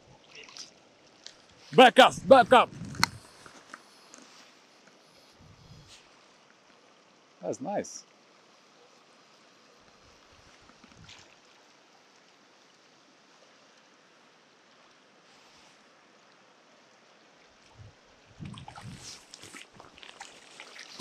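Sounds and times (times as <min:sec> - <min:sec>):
river current rushing: 0:01.6 - 0:05.4
splashes and knocks in water: 0:10.7 - 0:11.5, 0:18.4 - 0:21.0.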